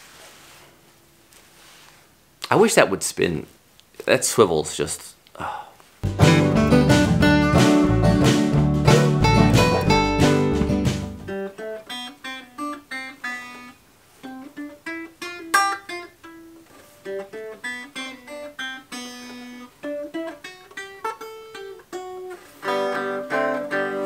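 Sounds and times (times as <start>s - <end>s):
banjo picked slowly: 6.0s - 11.4s.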